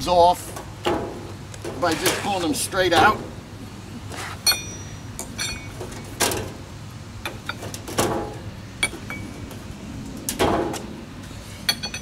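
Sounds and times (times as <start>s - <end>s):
short metallic ring: 4.4s - 5.8s.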